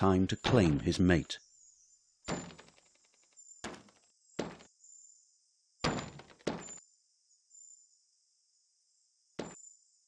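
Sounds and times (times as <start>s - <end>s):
dull sharp thunks: 2.3s - 2.9s, 3.6s - 4.8s, 5.8s - 6.8s, 9.4s - 9.6s.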